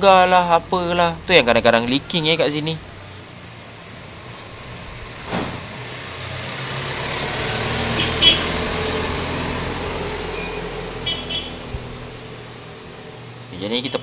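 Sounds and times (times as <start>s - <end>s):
motor vehicle passing: 0.0s - 14.0s.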